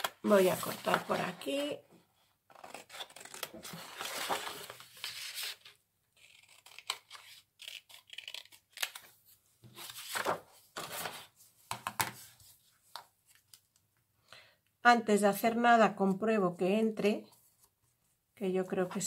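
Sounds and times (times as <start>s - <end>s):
paper rustling: 0.0s - 1.6s, 2.7s - 5.8s, 8.0s - 13.7s
scissors snipping paper: 6.2s - 9.1s.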